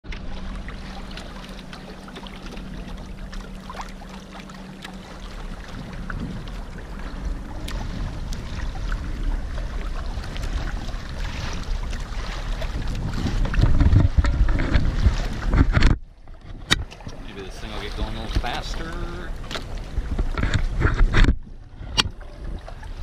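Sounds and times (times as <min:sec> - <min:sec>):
water rushing along hull: 0:00.0 - 0:23.0
small splashes: 0:00.1 - 0:20.9
wind noise on microphone: 0:05.5 - 0:23.0.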